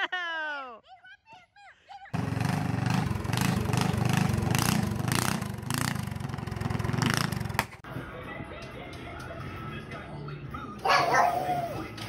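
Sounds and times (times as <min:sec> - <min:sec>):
small engine putter: 0:02.2 - 0:07.8.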